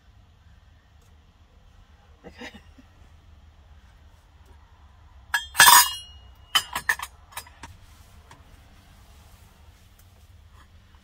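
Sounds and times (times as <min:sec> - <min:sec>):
brief metallic ring: 0:05.4 - 0:07.5
kitchen utensils clattering: 0:05.4 - 0:07.6.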